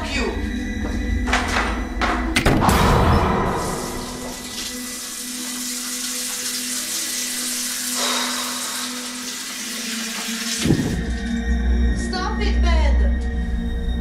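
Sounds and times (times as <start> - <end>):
tap water running into sink: 3.7 - 11.4.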